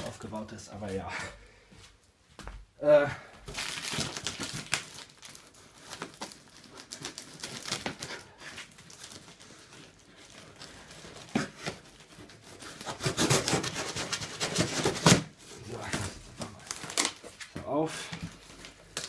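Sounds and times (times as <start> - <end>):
knife cutting cardboard and tape: 11.2 - 16.0.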